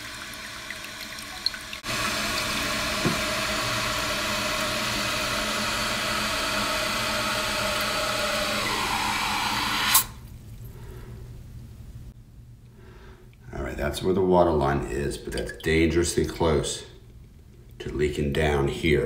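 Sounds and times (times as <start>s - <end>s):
toilet cistern refilling: 0.0s - 10.2s.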